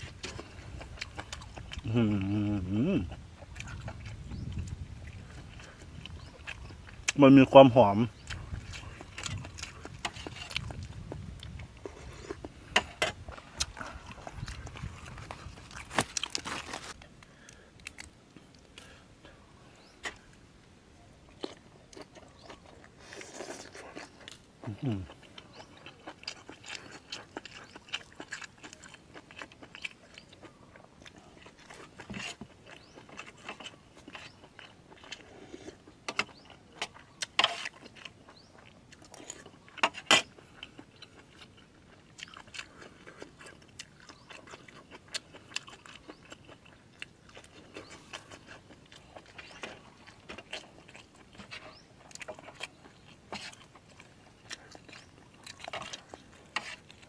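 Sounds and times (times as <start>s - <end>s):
person chewing crunchy food: 0.0s - 20.4s, 21.3s - 57.0s.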